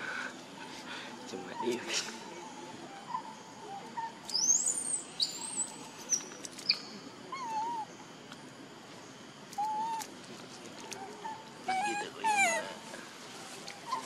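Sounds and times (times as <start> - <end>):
faint wavering bird calls: 0.0 - 8.2, 9.5 - 14.0
birds whistling and chirping: 1.4 - 8.0.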